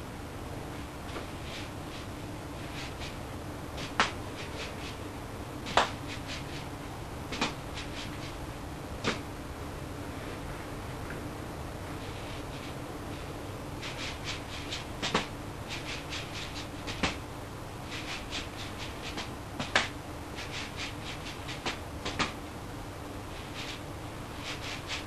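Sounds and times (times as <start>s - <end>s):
louder single slaps: 3.8s - 4.2s, 5.7s - 6.0s, 9.0s - 9.2s, 19.6s - 19.9s, 21.7s - 22.4s
juggling balls landing in hands: 21.6s - 22.4s.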